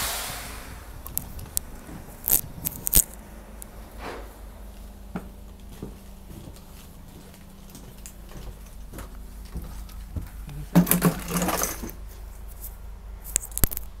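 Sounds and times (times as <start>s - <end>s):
subway train rumble: 0.0s - 7.7s
metallic clattering and rattling: 10.7s - 12.0s.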